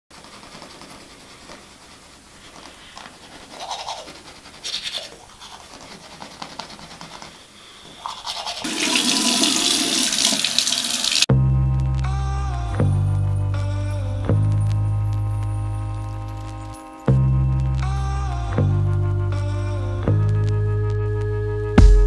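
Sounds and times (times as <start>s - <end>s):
toothbrush scrubbing teeth: 0.1s - 10.7s.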